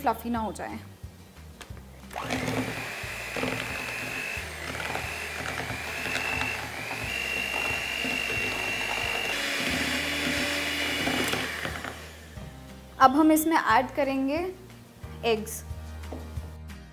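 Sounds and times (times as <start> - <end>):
electric hand mixer whining: 2.1 - 12.5.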